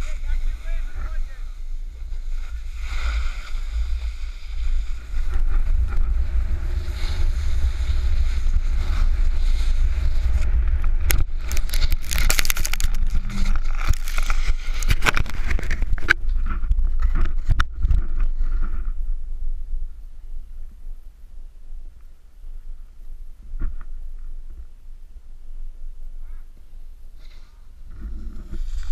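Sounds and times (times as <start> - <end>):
snowboard sliding on snow: 0.0 - 17.1, 27.1 - 28.9.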